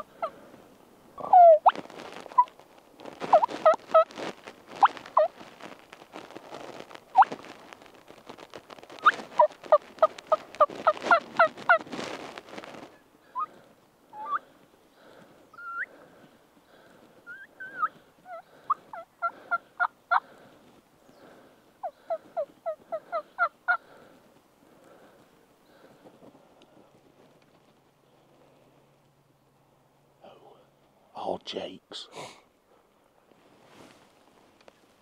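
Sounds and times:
turkey clucks: 0:00.0 - 0:00.4, 0:01.2 - 0:02.6, 0:03.2 - 0:04.2, 0:09.0 - 0:11.8, 0:13.3 - 0:13.6, 0:14.2 - 0:16.0, 0:17.3 - 0:20.5, 0:21.2 - 0:24.0
wild turkeys yelping: 0:00.0 - 0:00.5, 0:01.2 - 0:02.6, 0:03.3 - 0:04.1, 0:04.8 - 0:05.4, 0:09.0 - 0:11.8, 0:13.2 - 0:16.0, 0:16.7 - 0:24.2.

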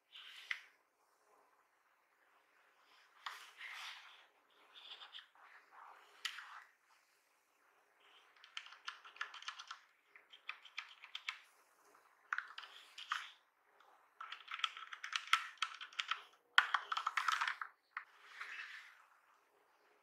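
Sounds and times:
mechanical keyboard keys clacking: 0:08.4 - 0:11.4, 0:14.2 - 0:17.6.

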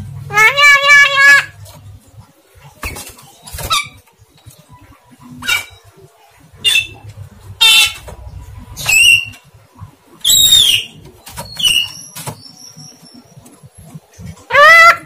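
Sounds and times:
myna bird calls: 0:02.8 - 0:08.2, 0:10.2 - 0:15.0.

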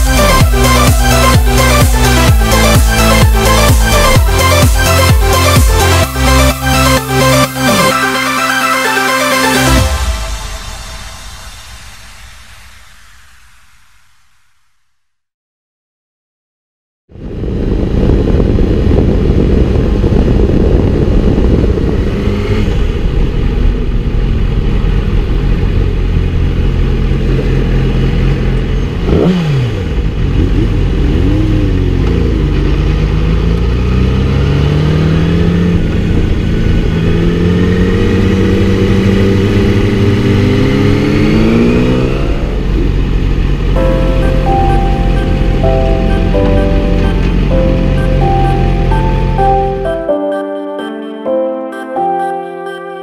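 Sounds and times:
motorcycle engine accelerating: 0:00.0 - 0:08.4, 0:17.1 - 0:50.0.

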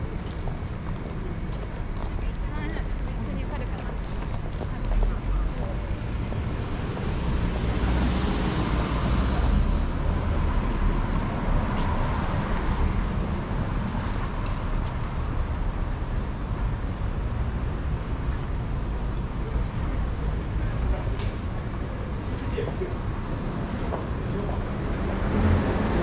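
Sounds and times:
road traffic noise: 0:00.0 - 0:26.0
car passing: 0:05.1 - 0:14.3, 0:22.0 - 0:26.0.

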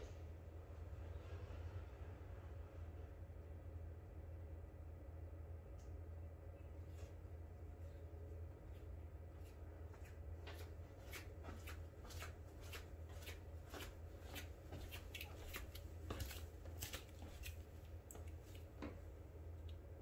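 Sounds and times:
steady low hum: 0:00.0 - 0:20.0
flip-flops slapping while walking: 0:08.7 - 0:19.0.

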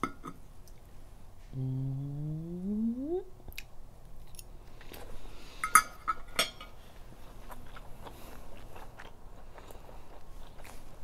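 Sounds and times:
person chewing food: 0:07.0 - 0:11.0.

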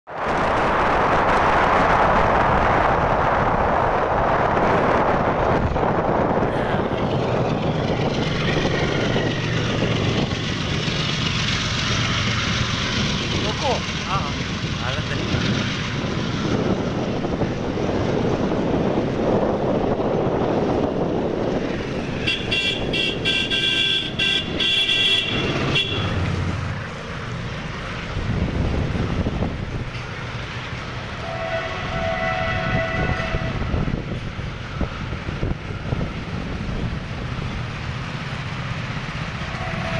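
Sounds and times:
goods train rolling past: 0:00.1 - 0:39.9
horn honking: 0:22.1 - 0:26.3, 0:31.2 - 0:34.1, 0:39.4 - 0:39.9.

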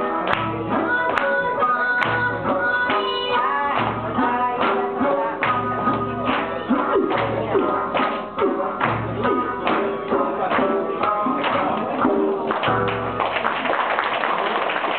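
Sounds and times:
plucked lute melody: 0:00.0 - 0:13.2
deep barrel drum beats: 0:02.0 - 0:13.5.

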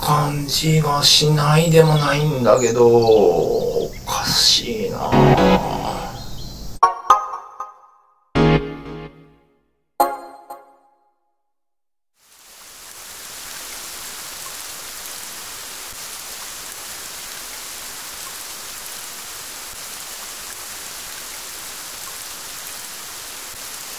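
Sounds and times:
rain falling: 0:12.2 - 0:23.9.

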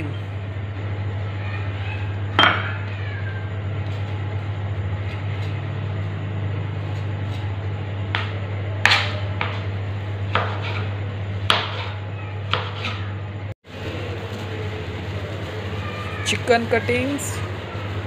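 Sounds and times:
steady low hum: 0:00.0 - 0:16.2
knife chopping on cutting board: 0:10.3 - 0:13.0.

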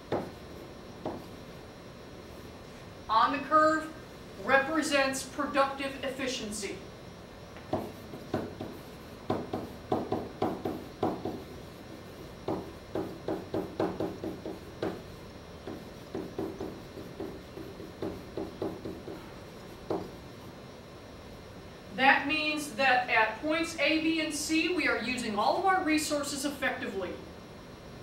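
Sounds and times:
pen writing on a whiteboard: 0:00.1 - 0:01.4, 0:07.6 - 0:20.4.

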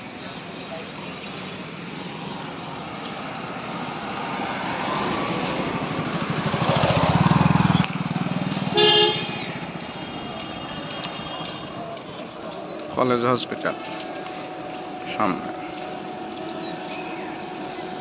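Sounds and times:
car driving past: 0:03.4 - 0:09.7
car horn toot: 0:08.7 - 0:11.7.

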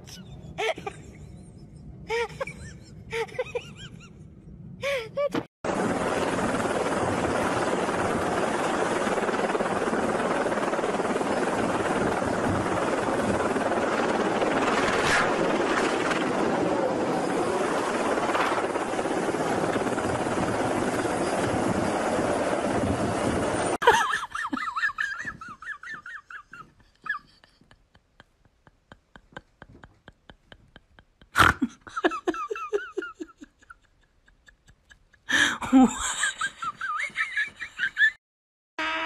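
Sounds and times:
helicopter engine and rotor roar: 0:05.7 - 0:23.8.

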